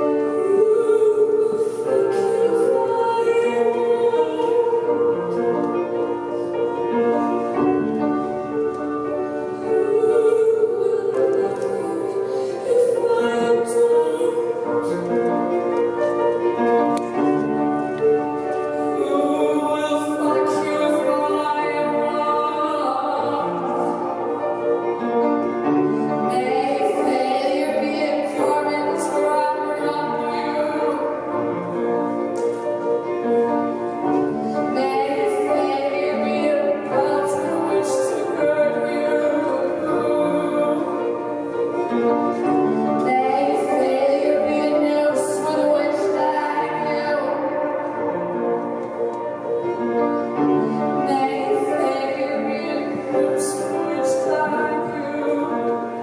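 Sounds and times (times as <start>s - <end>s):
woman singing operatically: 0.0s - 5.6s, 9.7s - 15.2s, 18.8s - 25.0s, 26.0s - 31.4s, 34.6s - 41.4s, 43.0s - 48.1s, 51.0s - 56.0s
piano chords: 0.0s - 56.0s.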